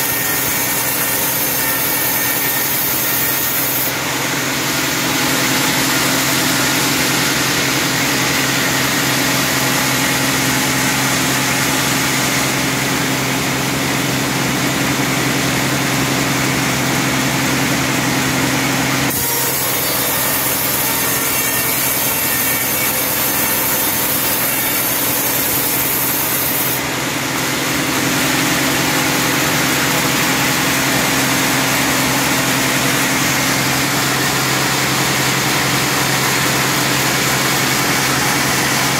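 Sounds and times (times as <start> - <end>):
band saw cutting log: 0.0 - 38.9.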